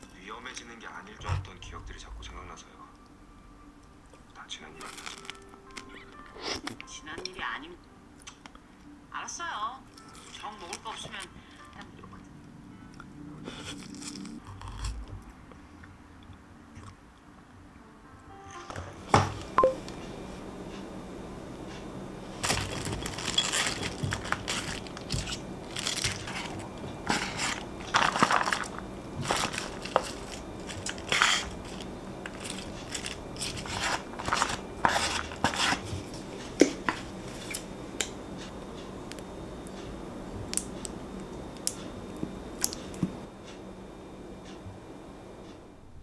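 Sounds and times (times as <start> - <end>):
lettuce leaves rustling and crunching: 4.8 - 5.4, 22.4 - 35.9.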